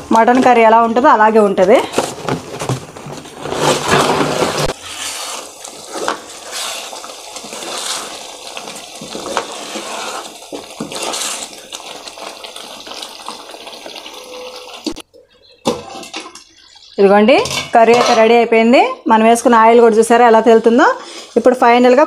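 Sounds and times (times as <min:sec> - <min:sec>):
steel ladle stirring: 0:03.2 - 0:13.0
curry bubbling in a pan: 0:03.2 - 0:15.0.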